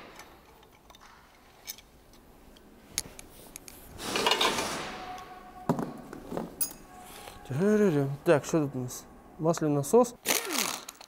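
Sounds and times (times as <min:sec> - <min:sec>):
metal parts and tools clinking: 0:00.0 - 0:07.4, 0:10.3 - 0:11.0.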